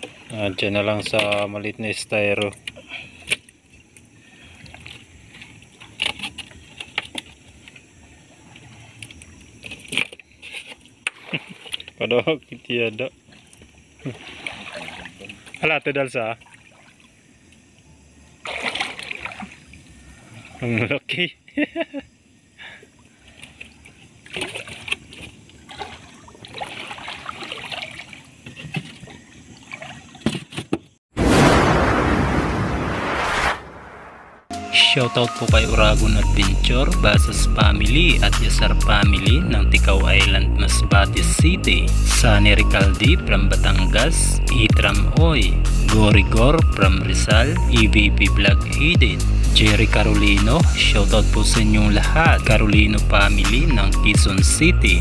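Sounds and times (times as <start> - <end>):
water splashing and trickling: 0.0 - 21.4, 22.2 - 31.0.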